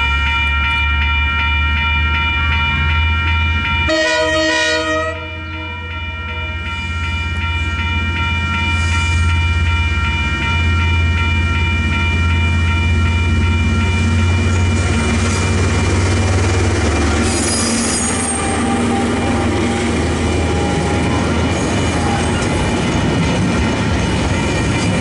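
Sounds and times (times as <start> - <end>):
level crossing bells ringing: 0.0 - 23.0
train horn blast: 3.9 - 5.9, 17.5 - 21.1
diesel locomotive rumble: 7.3 - 25.0.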